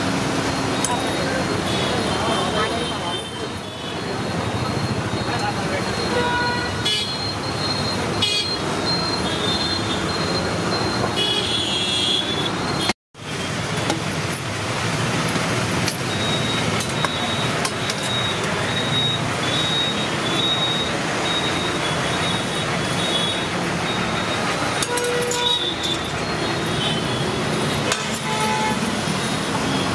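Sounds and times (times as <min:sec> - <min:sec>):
roadside traffic noise: 0:00.0 - 0:29.9
vehicle horn toots: 0:06.0 - 0:07.2, 0:24.8 - 0:26.0, 0:28.1 - 0:28.9.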